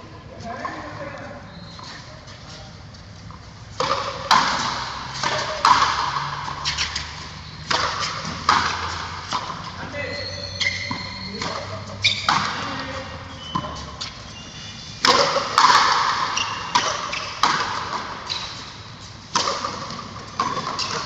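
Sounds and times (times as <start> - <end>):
ball hitting concrete wall: 3.8 - 13.9, 15.0 - 18.5, 19.4 - 21.0.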